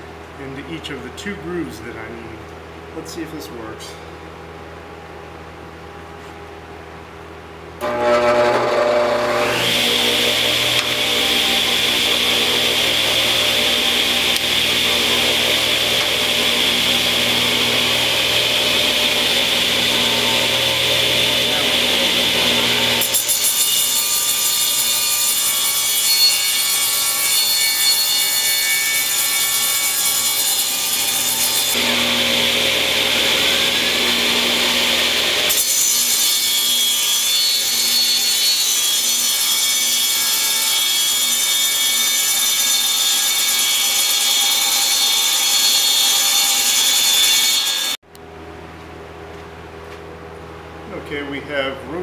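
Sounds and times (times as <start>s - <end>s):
motors humming: 7.8s - 23.0s
saw blade grinding through wood: 7.8s - 48.0s.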